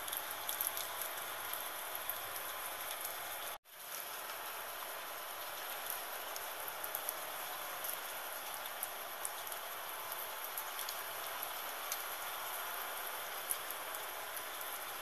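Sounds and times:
raindrops ticking: 0.0 - 3.6, 5.4 - 12.2
steady rain hiss: 0.0 - 15.0.

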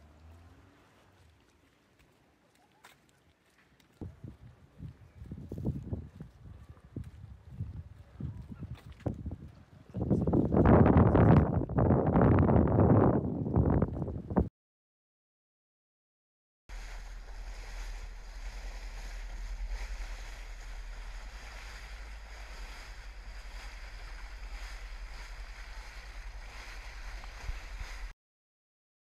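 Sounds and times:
wind buffeting microphone: 4.0 - 14.5, 16.7 - 28.1
low boat rumble: 16.7 - 28.1
water rushing: 16.7 - 28.1.

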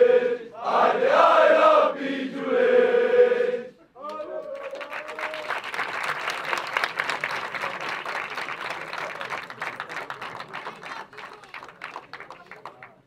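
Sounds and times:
crowd singing a chant: 0.0 - 3.7
crowd clapping: 4.0 - 13.0.

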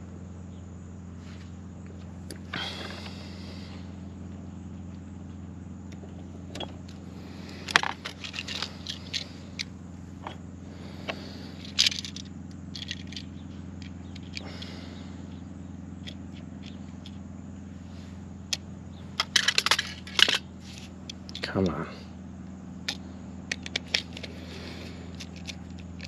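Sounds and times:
low hum: 0.0 - 26.0
metallic clicks and scrapes: 7.5 - 10.4, 11.6 - 14.7, 19.2 - 21.5, 22.9 - 26.0.

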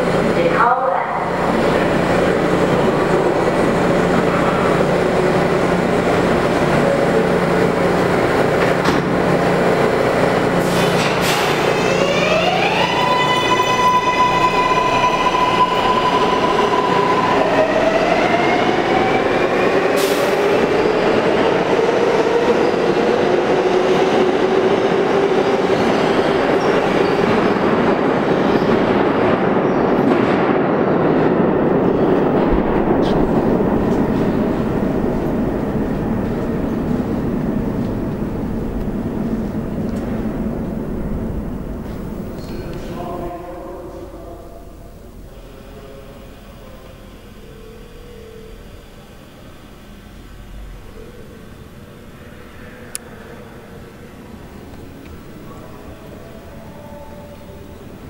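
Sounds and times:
train rolling over rails: 0.0 - 43.4
subway doors shutting: 0.0 - 58.0.

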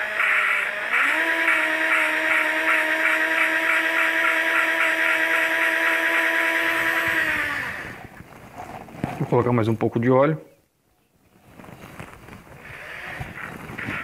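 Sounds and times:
electric drill motor whine: 0.0 - 8.1, 12.6 - 14.0
rhythmic valve grinding: 0.0 - 8.1.

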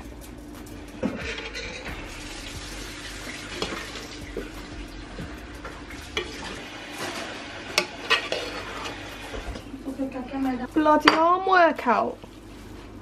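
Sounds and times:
spoon scraping rice in pot: 7.8 - 9.0.

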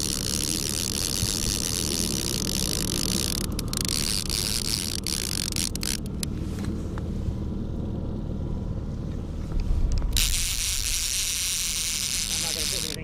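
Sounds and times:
outboard motor rumbling: 0.0 - 13.0.

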